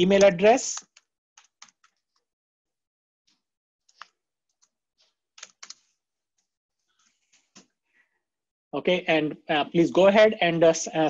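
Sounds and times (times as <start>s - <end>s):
faint typing on a keyboard: 0.1s - 2.3s, 3.3s - 7.7s.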